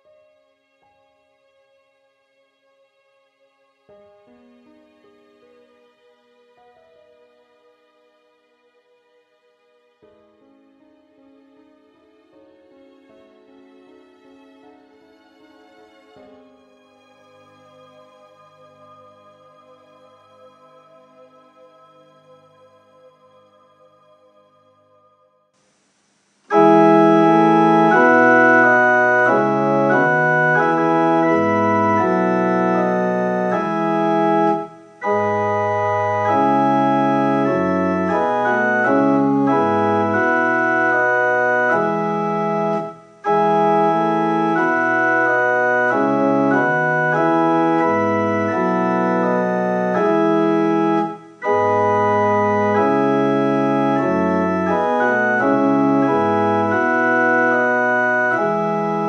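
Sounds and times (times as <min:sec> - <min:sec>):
organ playing sustained chords: 0:26.5 - 0:59.0.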